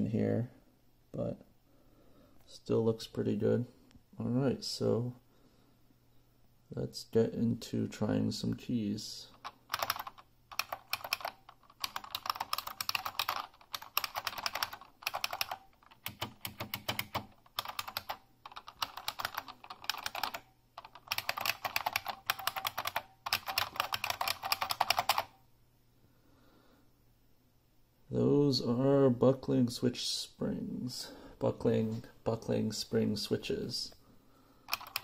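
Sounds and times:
clicky keyboard typing: 0:09.3 - 0:25.4, 0:34.7 - 0:35.0.

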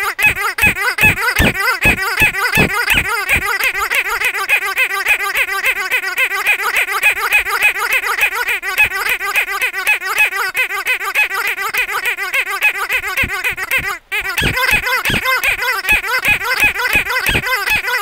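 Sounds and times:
squeaky dog toy squeaking: 0:00.0 - 0:18.0.

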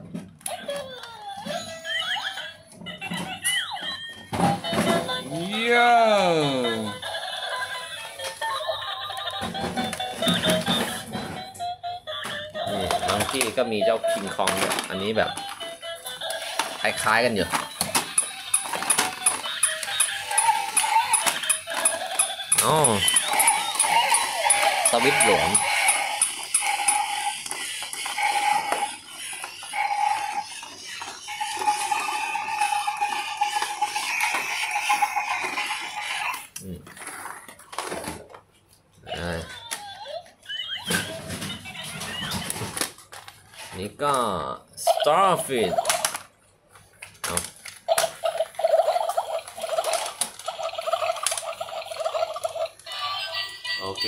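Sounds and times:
toy motor whirring: 0:00.4 - 0:38.0, 0:44.8 - 0:46.3, 0:47.3 - 0:54.0
plastic rattling and clicking: 0:12.8 - 0:26.4.

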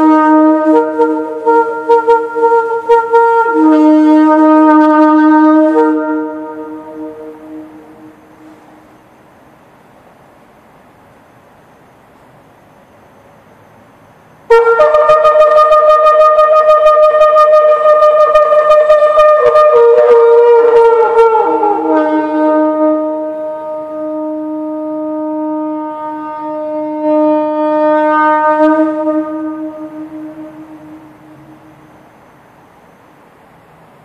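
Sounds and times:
shofar blast: 0:00.0 - 0:08.9, 0:14.5 - 0:32.0.

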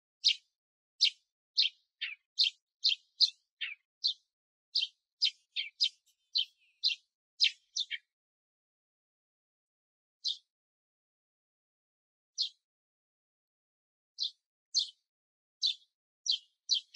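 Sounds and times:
sparrow chirping: 0:00.2 - 0:08.2, 0:10.2 - 0:10.5, 0:12.4 - 0:12.6, 0:14.2 - 0:16.9.

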